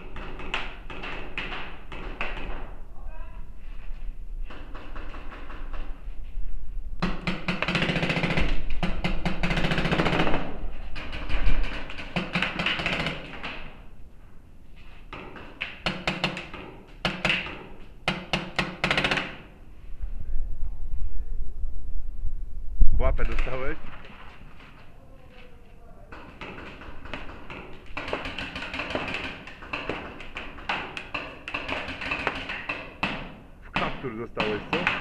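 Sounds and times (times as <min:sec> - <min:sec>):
paintball markers firing: 0:00.0 - 0:02.7, 0:07.0 - 0:13.8, 0:15.1 - 0:19.6, 0:26.1 - 0:35.0.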